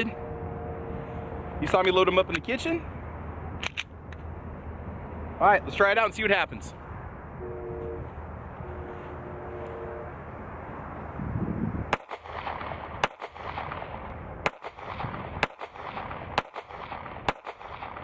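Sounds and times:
pistol shots: 11.9 - 18.0.

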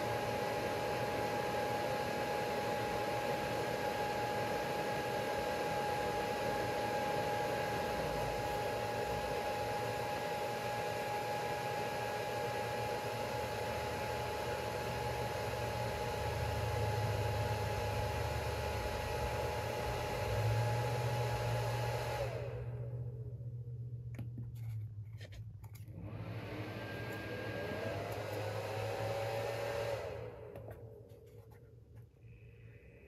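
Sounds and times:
cooling fans running: 0.0 - 31.6
low steady hum: 22.4 - 26.0.

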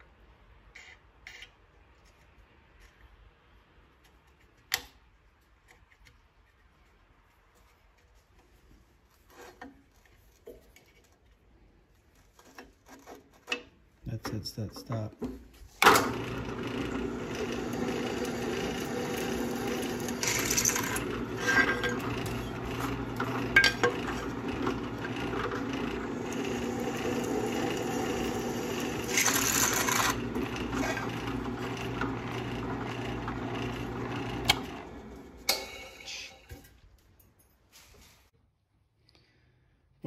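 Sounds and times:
drill press motor humming: 15.8 - 36.5
drill bit cutting metal: 16.0 - 36.4.

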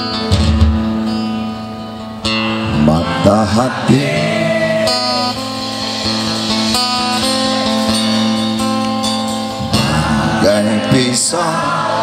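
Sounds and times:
live band music: 0.0 - 12.0
strummed acoustic guitar: 0.0 - 12.0
person singing: 2.7 - 5.5, 9.6 - 12.0.

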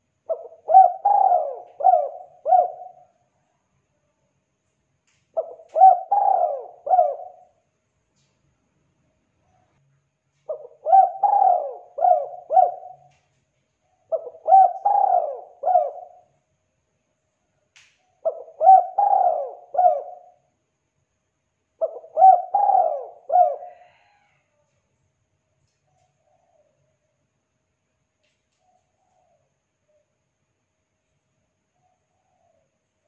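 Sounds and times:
dove cooing: 0.3 - 3.2, 5.4 - 7.6, 10.5 - 13.3, 13.9 - 16.3, 18.2 - 20.4, 21.8 - 24.4.

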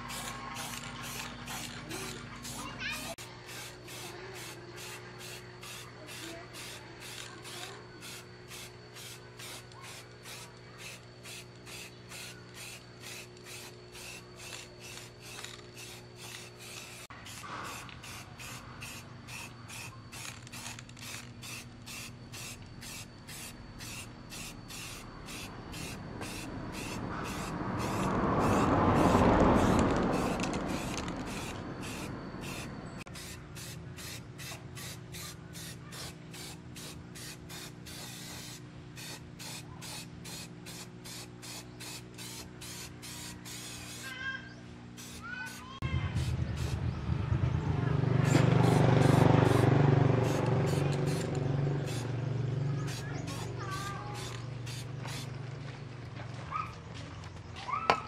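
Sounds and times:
spray paint can hissing: 0.0 - 44.2, 45.0 - 46.9, 48.2 - 52.1, 52.8 - 55.3
low rumble: 45.8 - 50.5.

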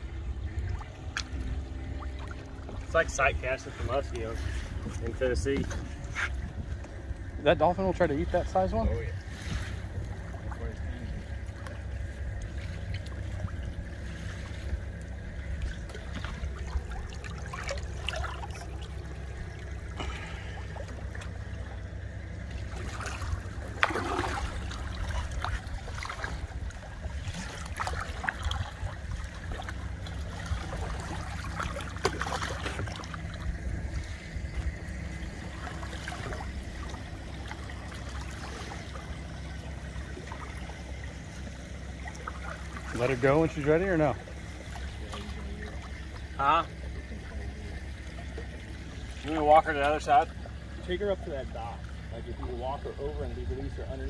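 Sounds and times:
steady low rumble: 0.0 - 54.0
water sloshing and trickling: 0.0 - 54.0
sharp water splashes: 0.4 - 6.4, 8.3 - 52.9.

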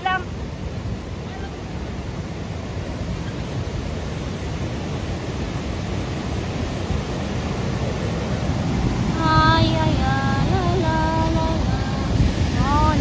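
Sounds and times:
waterfall and river rushing: 0.0 - 13.0
person singing or humming: 9.2 - 13.0.

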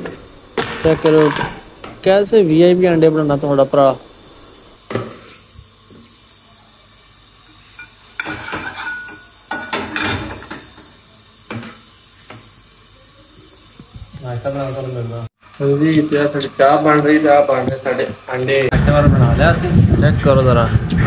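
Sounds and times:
metal spoon scraping frying pan: 7.8 - 10.8.

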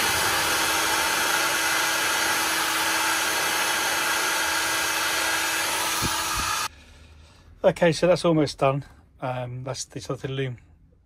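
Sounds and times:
heat gun air rushing: 0.0 - 6.7.

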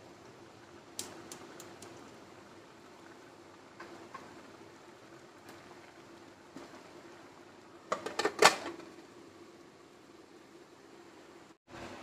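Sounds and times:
faint steady hum: 0.0 - 12.0
pot lid clattering on pot: 7.9 - 8.9.

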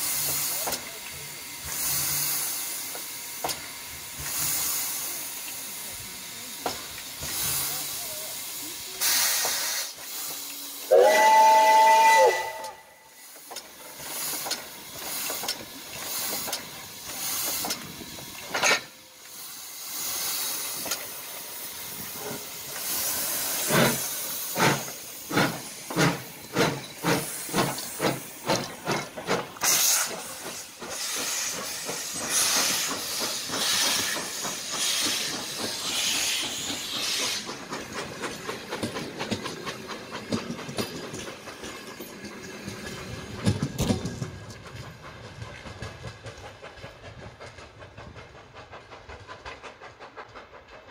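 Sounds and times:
steam hissing: 0.0 - 50.9
steam whistle chord: 10.9 - 13.1
wheels clicking over rail joints: 12.6 - 19.4, 20.5 - 50.9.

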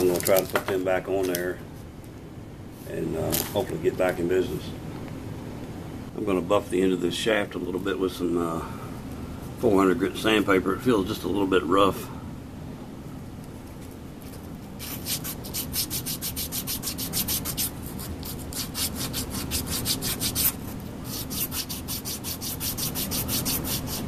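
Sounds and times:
sandpaper scratching on metal shaft: 14.8 - 24.0.

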